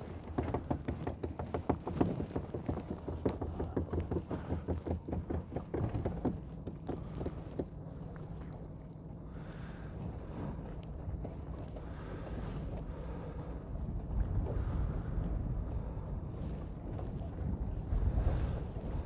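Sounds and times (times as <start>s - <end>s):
rapid light clicks and knocks: 0.0s - 8.0s
small boat engine humming: 0.0s - 19.0s.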